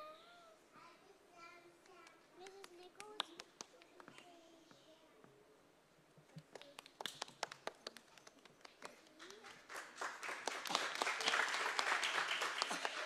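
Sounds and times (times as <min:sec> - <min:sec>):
audience applause: 0:07.0 - 0:13.0.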